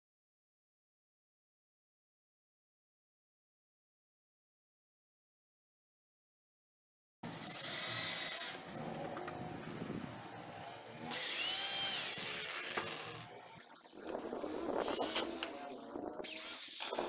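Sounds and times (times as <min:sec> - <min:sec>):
cordless drill motor whine: 0:07.3 - 0:09.0, 0:10.9 - 0:13.3.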